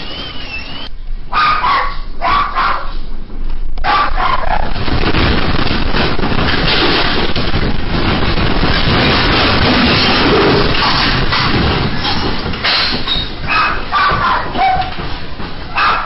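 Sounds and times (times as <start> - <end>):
dog barking: 1.3 - 3.0, 3.8 - 4.7, 13.5 - 15.0, 15.7 - 16.0
earthquake rumbling: 3.1 - 16.0.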